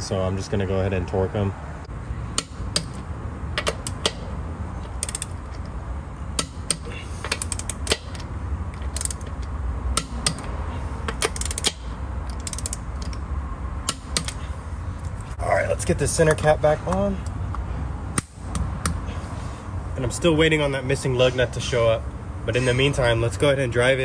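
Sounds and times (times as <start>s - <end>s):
ratchet wrench clicking: 2.3s - 3.0s, 3.6s - 5.8s, 6.4s - 14.5s.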